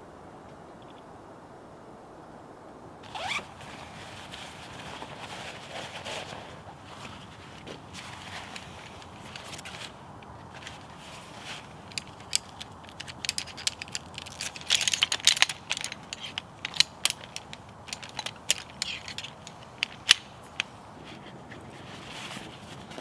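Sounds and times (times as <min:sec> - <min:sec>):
wood crackling and snapping: 0:07.6 - 0:20.7.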